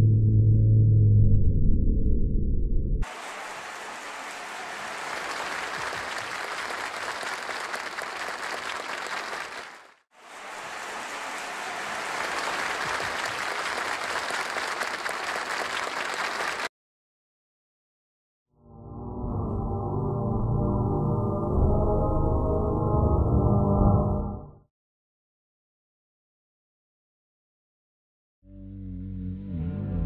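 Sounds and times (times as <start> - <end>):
audience applauding: 3.0 - 16.7.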